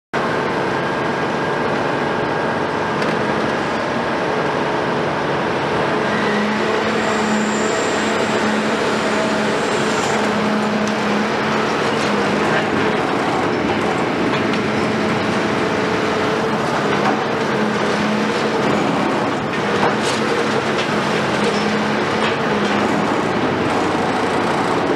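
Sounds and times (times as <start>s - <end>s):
excavator diesel engine running: 0.2s - 24.9s.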